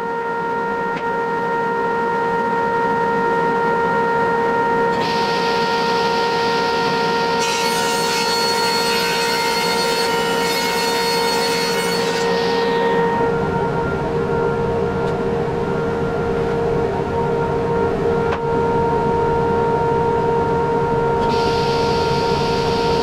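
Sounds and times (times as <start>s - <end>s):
steady whining hum: 0.0s - 23.0s
table saw cutting plywood: 4.9s - 13.3s, 21.2s - 23.0s.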